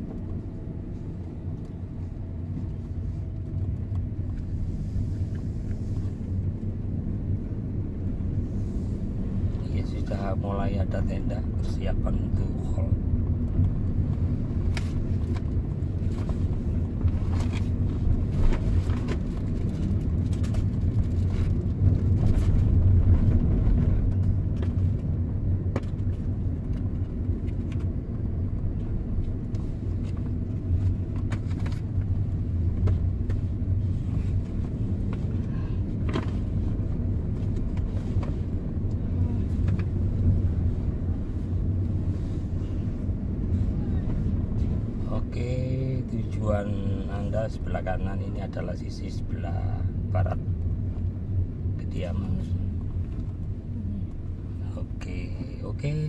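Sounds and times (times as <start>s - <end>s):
car engine hum: 0.0s - 56.0s
road rumble: 0.0s - 56.0s.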